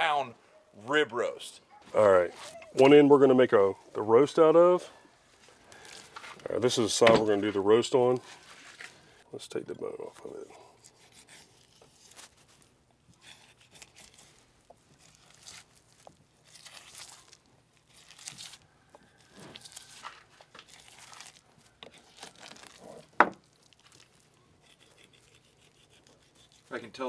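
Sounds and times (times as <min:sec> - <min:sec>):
knife slicing meat: 0:10.7 - 0:26.9.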